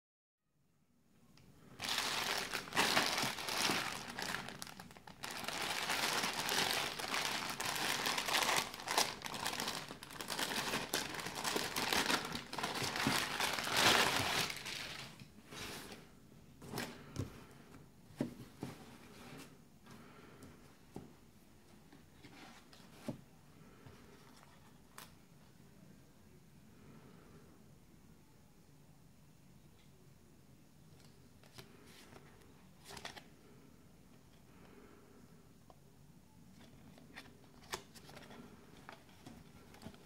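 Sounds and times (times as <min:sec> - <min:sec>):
plastic bag crinkling: 0:01.7 - 0:15.2.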